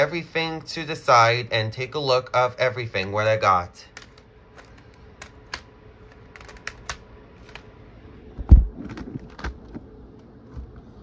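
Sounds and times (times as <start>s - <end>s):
plastic cd cases clacking: 3.9s - 7.7s, 8.7s - 9.8s
heavy thump: 8.4s - 9.1s.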